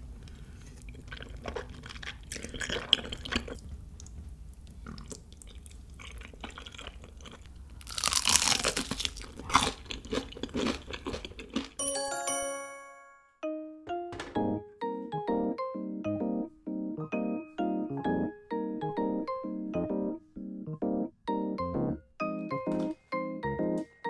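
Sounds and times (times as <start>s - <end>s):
chewing: 0.2s - 11.8s
crunchy bites into fried chicken: 7.8s - 11.8s.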